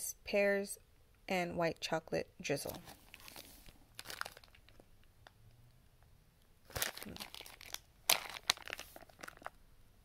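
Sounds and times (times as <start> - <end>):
plastic bag crinkling: 2.8 - 5.0, 6.7 - 9.6.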